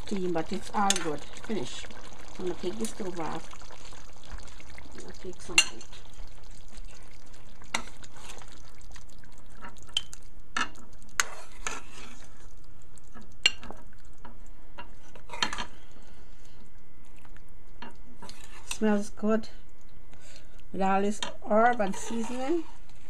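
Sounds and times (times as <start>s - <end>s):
metal spoon scraping a pot: 11.2s - 12.3s, 21.8s - 22.8s.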